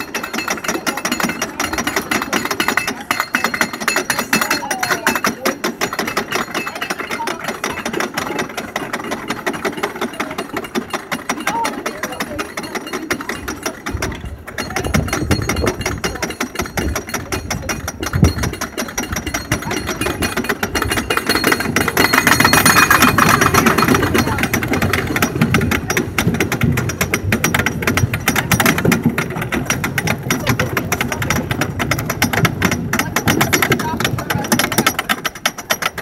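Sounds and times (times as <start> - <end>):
anti-rollback dogs clicking: 0.0 - 36.0
roller coaster lift chain clatter: 0.0 - 36.0.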